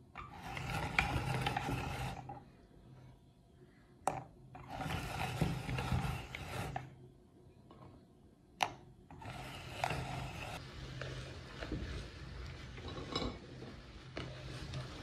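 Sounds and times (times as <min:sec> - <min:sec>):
grinder crunching cookies: 0:00.2 - 0:02.3, 0:04.6 - 0:06.8, 0:09.1 - 0:11.5.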